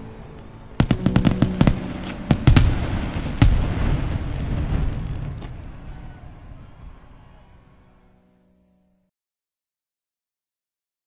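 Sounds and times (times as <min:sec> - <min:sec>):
fireworks cracking and banging: 0:00.8 - 0:06.6.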